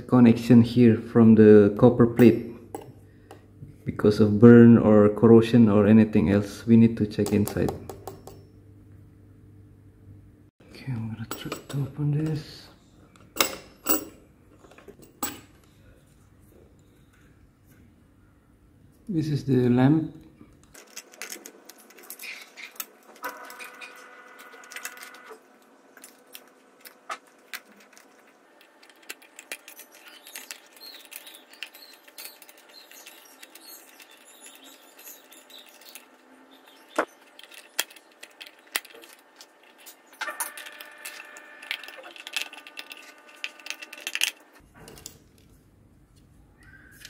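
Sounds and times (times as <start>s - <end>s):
small parts clicking and rattling: 20.6s - 45.5s
thin squeak: 28.9s - 44.0s.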